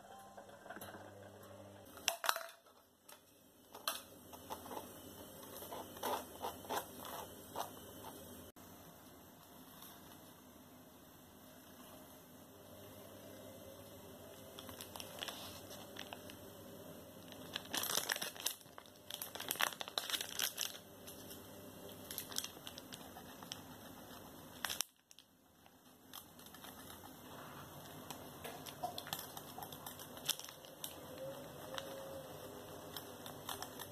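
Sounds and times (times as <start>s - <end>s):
plastic packaging crinkling: 14.4s - 16.4s, 17.2s - 33.9s.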